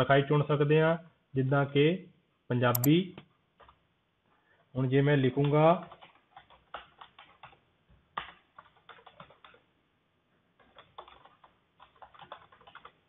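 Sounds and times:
computer keyboard typing: 0:05.9 - 0:07.6, 0:08.6 - 0:09.6, 0:10.6 - 0:13.0.

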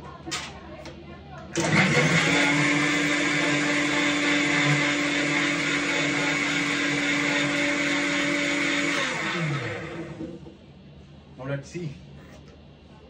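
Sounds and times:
mixer grinder running: 0:01.6 - 0:10.5.

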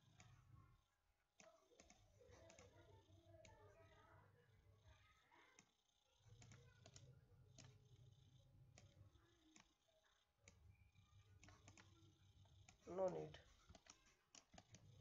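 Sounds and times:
computer mouse clicks: 0:00.0 - 0:00.4, 0:01.4 - 0:04.0, 0:05.5 - 0:09.8, 0:10.4 - 0:15.0
faint low hum: 0:00.0 - 0:15.0.

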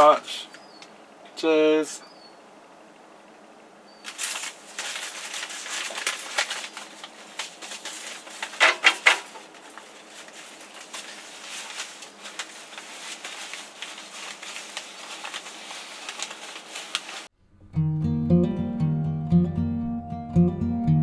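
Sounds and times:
packets crinkling and rustling: 0:04.0 - 0:17.3.

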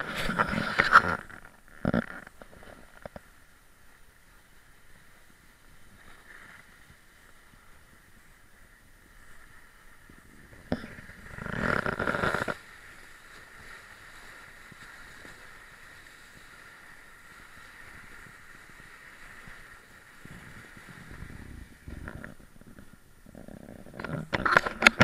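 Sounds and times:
sled scraping snow: 0:00.0 - 0:03.2, 0:04.4 - 0:25.0
sled runners hissing on snow: 0:04.2 - 0:22.0.

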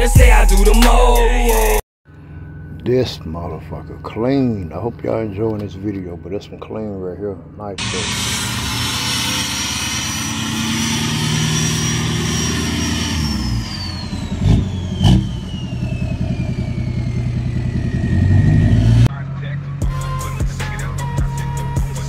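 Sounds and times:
high whistle sliding down: 0:07.8 - 0:18.4
fast pulsing exhaust note: 0:07.8 - 0:22.0
pickup truck engine running: 0:07.8 - 0:22.0.

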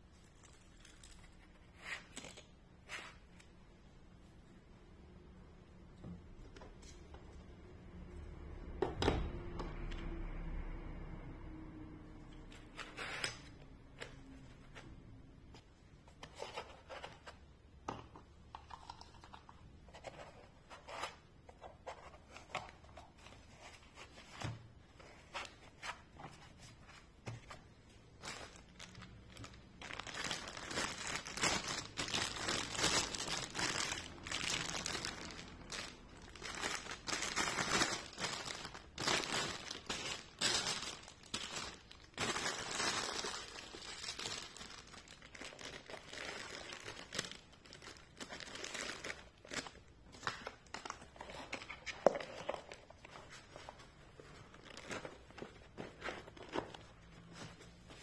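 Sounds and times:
plastic bag crinkling: 0:28.1 - 0:49.9.

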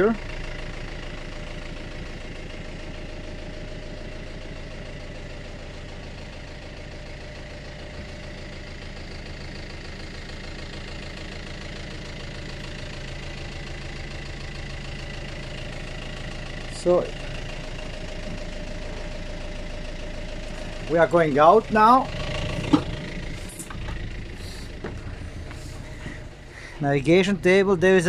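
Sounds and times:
diesel engine idling hum: 0:00.0 - 0:28.0.

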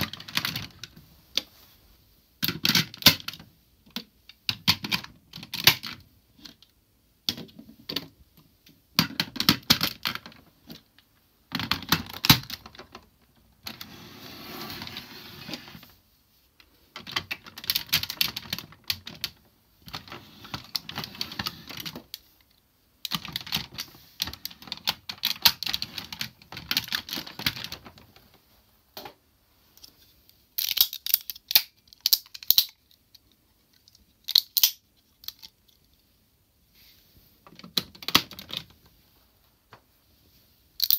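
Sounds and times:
plastic toy parts clicking: 0:30.6 - 0:35.9.

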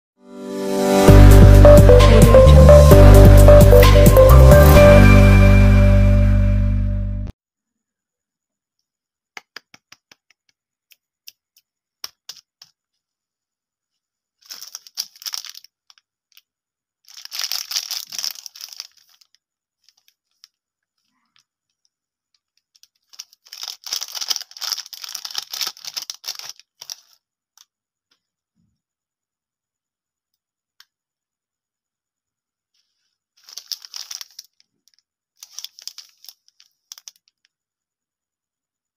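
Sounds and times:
plastic wrapper crinkling and tearing: 0:14.4 - 0:20.6, 0:22.4 - 0:27.7, 0:33.4 - 0:37.5.

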